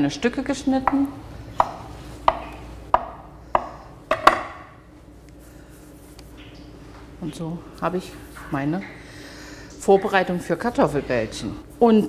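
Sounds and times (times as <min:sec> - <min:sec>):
knife striking wooden board: 0:01.6 - 0:04.6.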